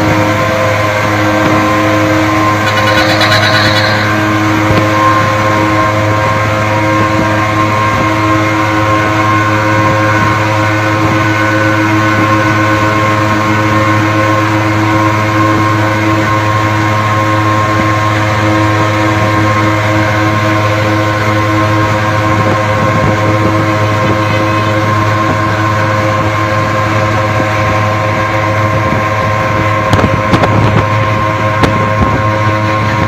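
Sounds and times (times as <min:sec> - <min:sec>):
two-stroke engines racing: 0:00.0 - 0:33.0
brief high-pitched sound: 0:02.6 - 0:04.4.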